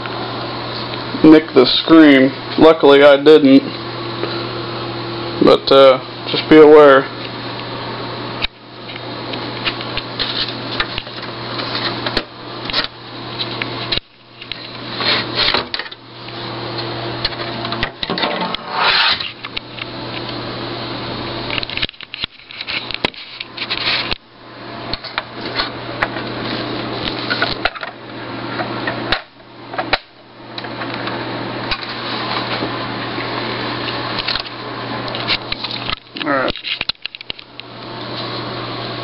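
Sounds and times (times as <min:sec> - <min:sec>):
plastic and metal parts scraping: 0:18.1 - 0:19.4, 0:21.6 - 0:24.2.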